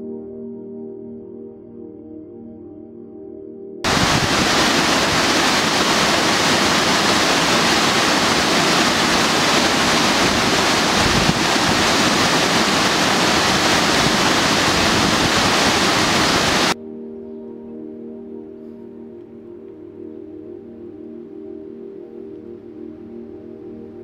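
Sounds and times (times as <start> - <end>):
water jetting into pool: 3.9 - 16.8.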